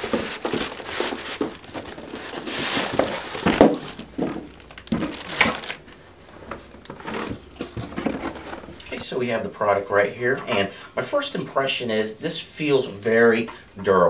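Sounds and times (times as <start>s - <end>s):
plastic wrapping crinkling: 0.0s - 6.0s
handling knocks: 0.0s - 9.0s.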